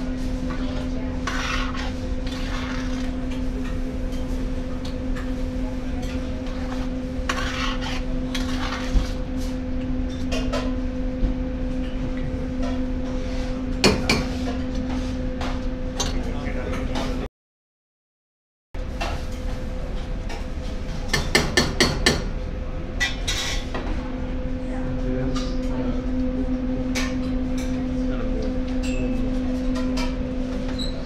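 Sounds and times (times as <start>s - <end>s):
utensils scraping: 0.5s - 4.3s, 6.0s - 9.2s.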